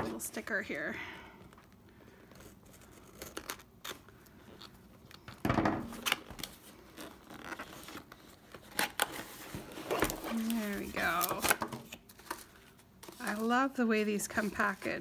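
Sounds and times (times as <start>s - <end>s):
cardboard rustling: 6.2s - 15.0s.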